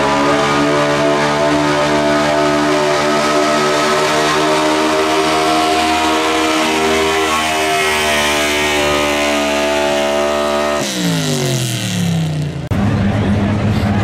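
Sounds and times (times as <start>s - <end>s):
diesel truck engine revving: 0.0s - 14.0s.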